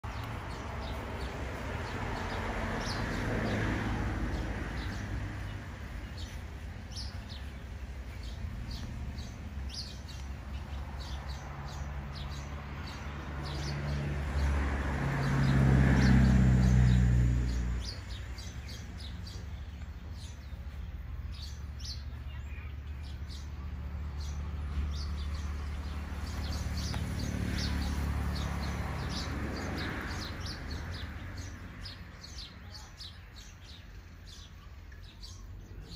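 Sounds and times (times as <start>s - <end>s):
vehicle passing: 0.0s - 34.4s
small birds chirping: 0.0s - 35.9s.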